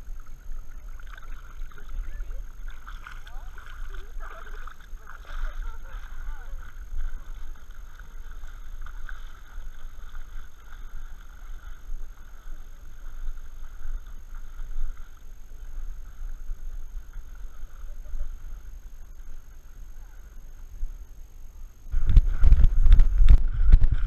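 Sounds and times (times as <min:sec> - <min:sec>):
water sloshing: 0:00.0 - 0:21.2
faint steady high whine: 0:00.0 - 0:24.0
wind buffeting camera: 0:21.9 - 0:24.0.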